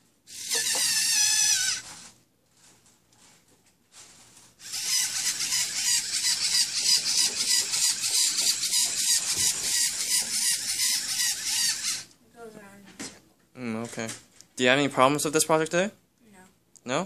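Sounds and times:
high-pitched pulsing motor buzz: 0:00.3 - 0:01.9, 0:04.6 - 0:12.1
electric motors whirring: 0:00.3 - 0:02.0, 0:04.6 - 0:12.1.

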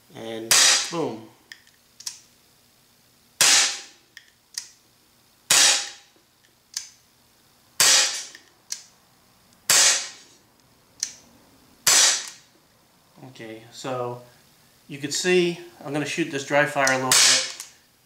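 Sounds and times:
air pistol shots cracking: 0:00.5 - 0:01.0, 0:03.4 - 0:04.0, 0:05.5 - 0:06.1, 0:07.8 - 0:08.4, 0:09.7 - 0:10.2, 0:11.8 - 0:12.4, 0:16.9 - 0:17.7.

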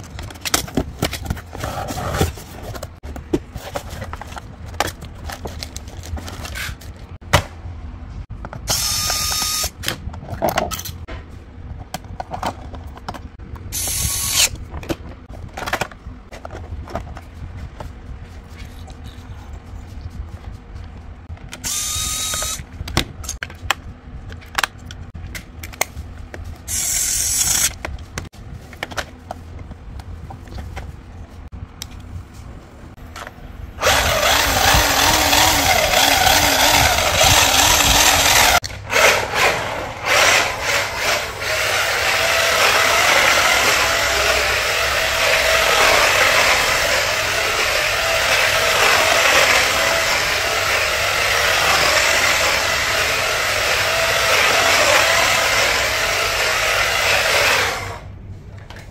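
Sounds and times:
electric motor whirring: 0:08.7 - 0:09.8, 0:21.6 - 0:22.6, 0:33.8 - 0:58.0.

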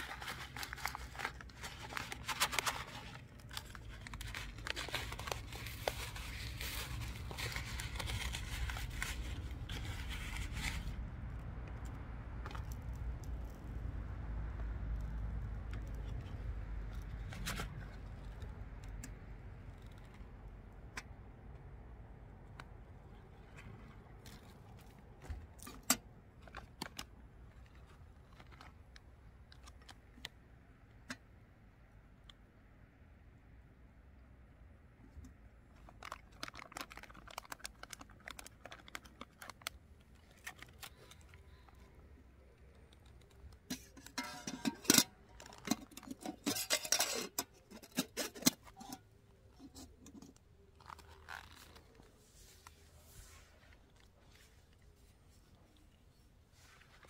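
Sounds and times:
plastic pouch being handled: 0:00.0 - 0:13.5, 0:22.8 - 0:30.4, 0:35.6 - 0:57.0
metal cookware clinking: 0:44.0 - 0:49.0.

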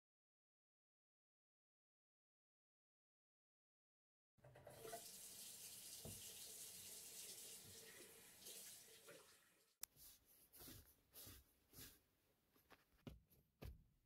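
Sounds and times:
tap water running into sink: 0:04.4 - 0:09.6.

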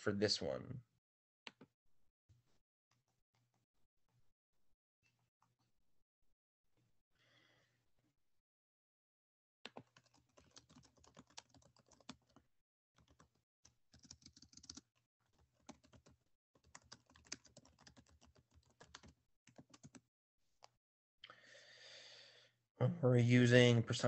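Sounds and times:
faint keyboard typing: 0:09.7 - 0:20.0.

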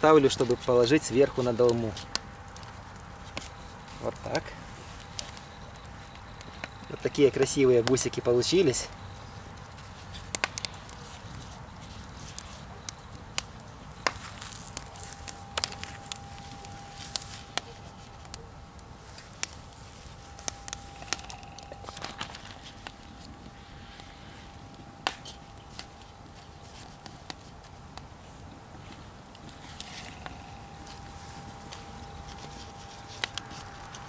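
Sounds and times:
wood fire crackling: 0:00.0 - 0:34.0
faint steady high tone: 0:03.4 - 0:09.4, 0:14.2 - 0:26.8, 0:29.5 - 0:34.0.

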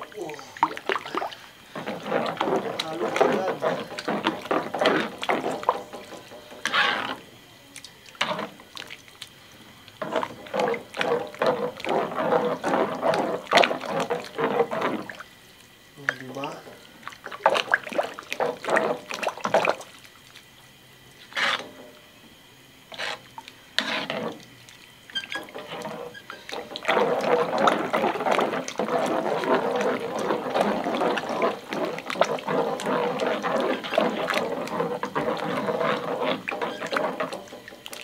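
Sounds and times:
ladle stirring broth in a wok: 0:00.6 - 0:15.6, 0:16.2 - 0:20.4, 0:21.2 - 0:22.1, 0:22.8 - 0:38.0.

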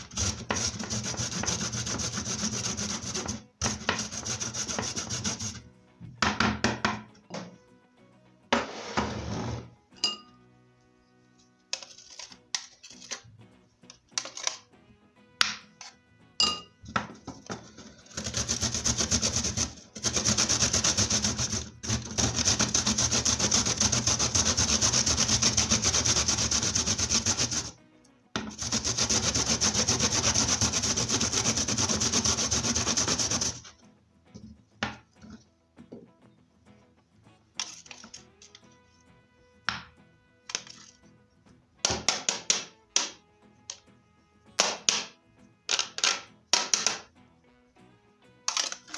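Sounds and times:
ginger rasping on metal grater: 0:00.0 - 0:05.6, 0:17.8 - 0:27.8, 0:28.5 - 0:33.7
grater knocks and clinks: 0:48.5 - 0:48.9.

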